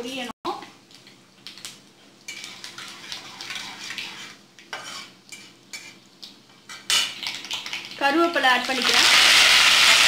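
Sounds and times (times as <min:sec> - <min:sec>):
seeds sizzling in hot oil: 0:01.6 - 0:10.0
metal spatula scraping a pan: 0:02.3 - 0:06.1.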